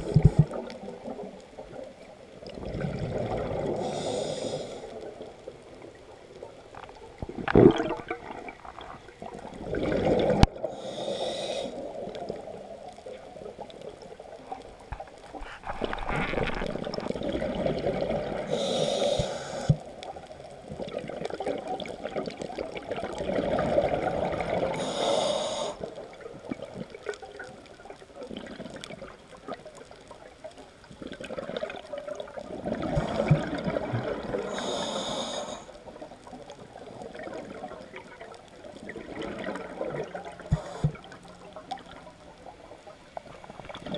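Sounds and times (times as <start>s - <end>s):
regulator hissing inhalations: 3.8s - 5.0s, 10.7s - 11.8s, 18.5s - 19.8s, 24.8s - 25.9s, 34.5s - 35.7s, 40.5s - 41.0s
regulator bubbling exhalations: 7.3s - 9.0s, 32.6s - 35.4s.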